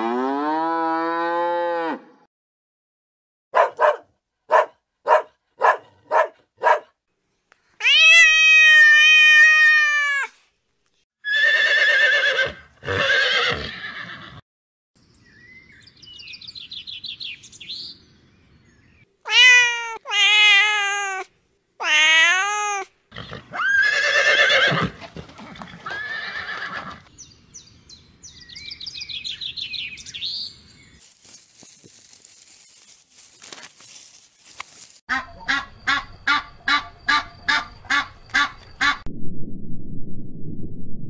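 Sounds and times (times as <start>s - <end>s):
cat meowing: 7.8s - 10.3s, 19.3s - 22.9s
duck quacking: 35.1s - 39.0s.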